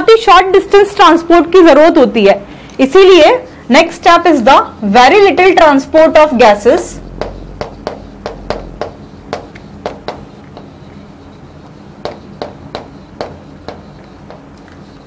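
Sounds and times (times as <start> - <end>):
chalk tapping on chalkboard: 6.6 - 15.0.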